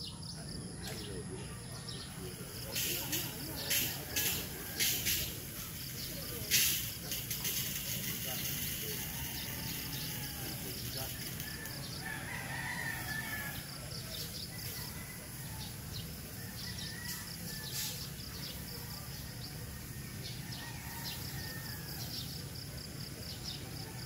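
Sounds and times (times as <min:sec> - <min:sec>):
birds chirping: 0:00.0 - 0:24.0
insects trilling: 0:00.0 - 0:24.0.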